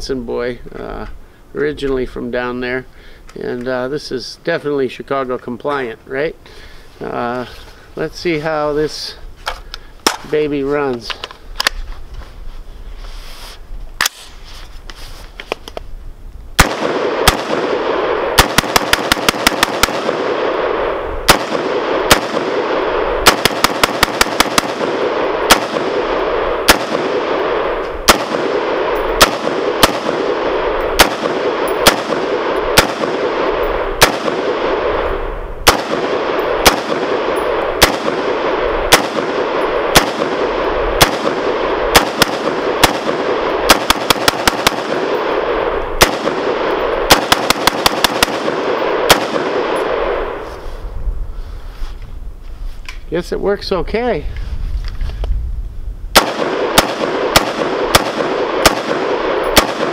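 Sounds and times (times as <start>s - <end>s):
rifle shots echoing: 16.6s - 50.5s, 56.1s - 59.9s.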